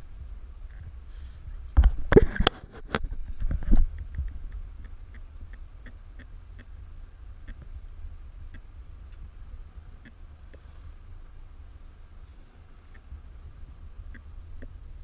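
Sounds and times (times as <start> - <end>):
wind on microphone: 0.0 - 10.5.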